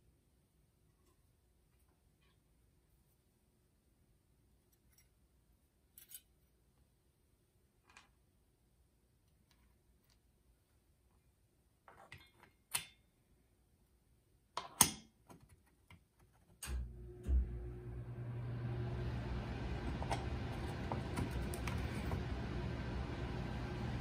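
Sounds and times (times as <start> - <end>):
low hum with hiss: 16.6 - 24.0.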